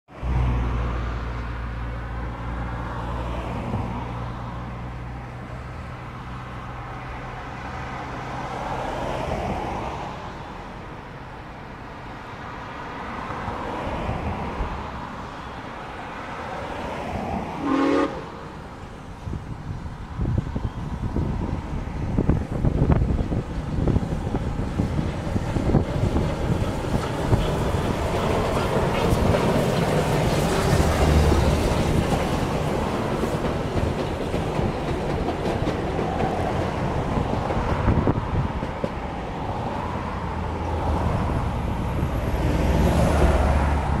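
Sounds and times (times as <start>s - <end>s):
steam train passing: 4.8s - 44.0s
clicking train wheels: 24.1s - 39.1s.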